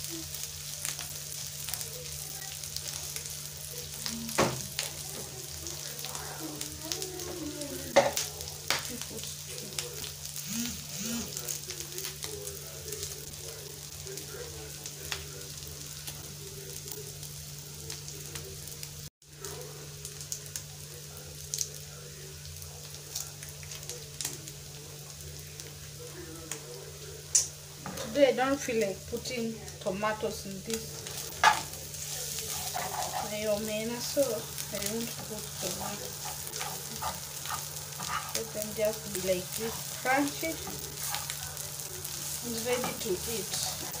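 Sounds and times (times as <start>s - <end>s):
oil crackles and pops: 0.0s - 15.4s, 17.8s - 25.8s, 26.4s - 27.6s
fish frying in oil: 0.0s - 44.0s.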